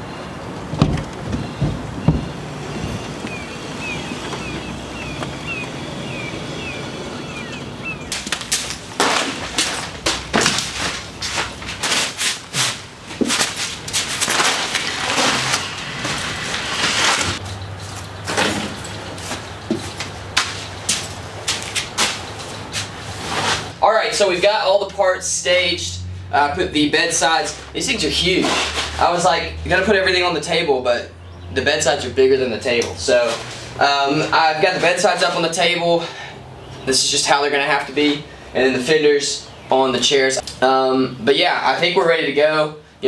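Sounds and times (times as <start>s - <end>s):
bird chirping: 0.0s - 8.9s, 17.4s - 21.0s, 31.1s - 32.2s, 36.4s - 37.2s
knocks thuds and scrapes: 0.7s - 3.1s, 8.1s - 17.4s
car engine running: 1.0s - 8.1s.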